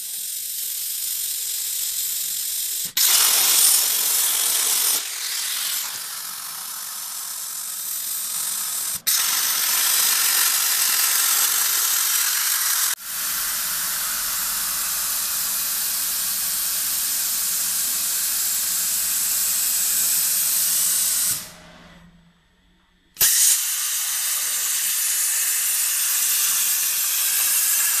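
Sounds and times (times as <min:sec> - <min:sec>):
plasma cutter hissing: 0:00.0 - 0:21.5, 0:23.2 - 0:28.0.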